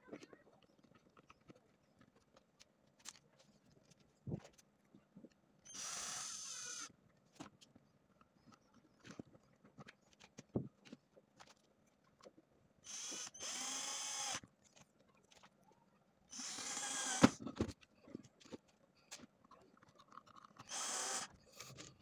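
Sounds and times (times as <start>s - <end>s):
electric screwdriver whirring: 5.7s - 6.9s, 12.9s - 14.4s, 16.3s - 17.4s, 20.6s - 21.4s.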